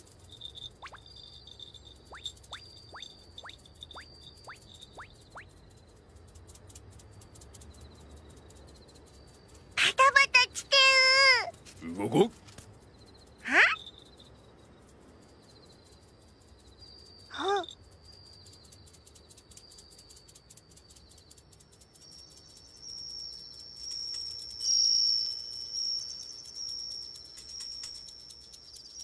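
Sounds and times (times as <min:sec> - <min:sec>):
crickets chirping: 0:00.0 - 0:29.0
kitten mewing: 0:13.4 - 0:13.8.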